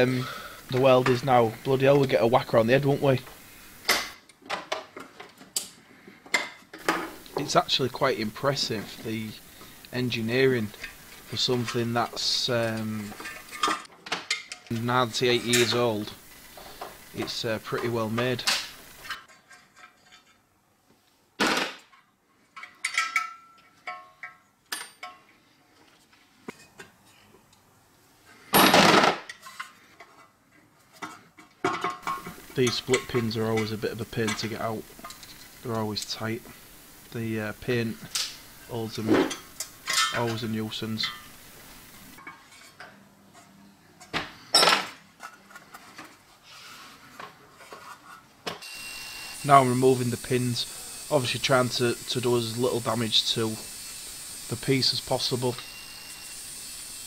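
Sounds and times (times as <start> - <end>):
metal parts clinking and scraping: 12.6 - 20.5, 22.5 - 25.3, 31.0 - 35.7, 38.0 - 41.4
metal parts clinking: 22.6 - 25.2, 39.2 - 41.3.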